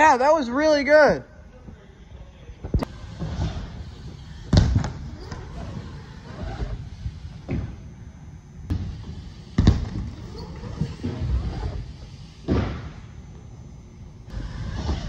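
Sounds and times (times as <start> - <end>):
bikes thudding on wooden ramps: 3.0 - 7.8, 8.7 - 13.1.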